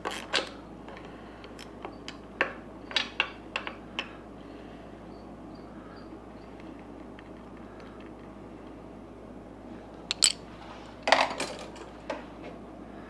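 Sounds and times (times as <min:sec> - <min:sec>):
tools clinking in metal drawer: 0:10.1 - 0:10.4.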